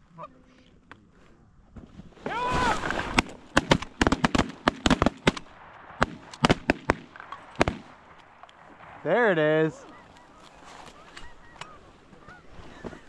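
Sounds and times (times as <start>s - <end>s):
shotgun blasts: 2.6s - 8.2s.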